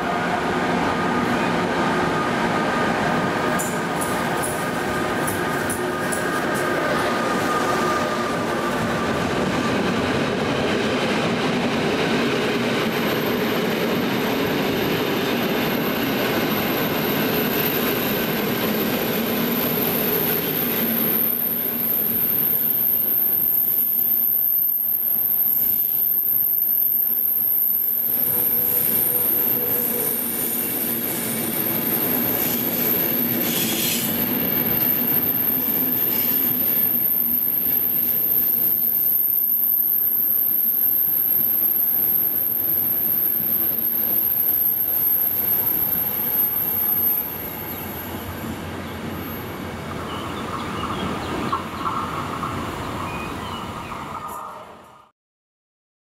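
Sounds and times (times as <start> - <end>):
train wheels rumbling on rails: 0.0 - 24.7, 25.3 - 55.0
thin high whine: 12.9 - 50.1
faint wheel squeals: 29.0 - 36.4.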